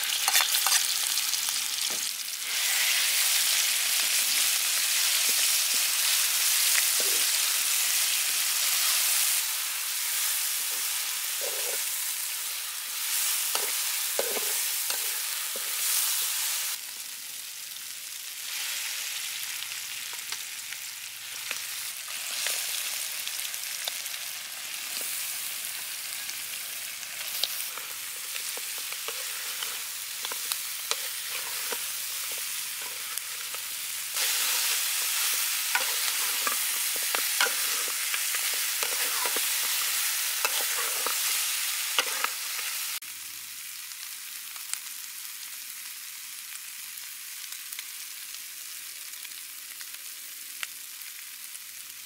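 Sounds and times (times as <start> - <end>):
metal spatula scraping a wok: 0.0 - 1.2, 10.7 - 11.9, 13.2 - 16.2, 27.1 - 42.8
meat frying: 0.0 - 52.0
paste sizzling in hot oil: 0.0 - 52.0.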